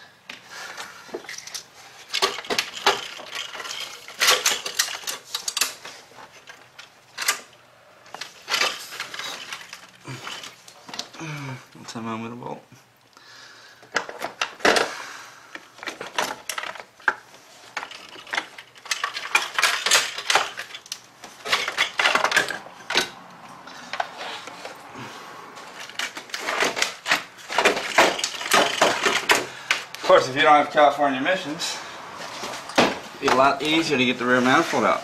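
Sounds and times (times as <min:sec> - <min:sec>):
metal tools and bolts clinking: 0:01.2 - 0:11.1, 0:15.8 - 0:24.7, 0:25.7 - 0:31.8, 0:32.4 - 0:35.0.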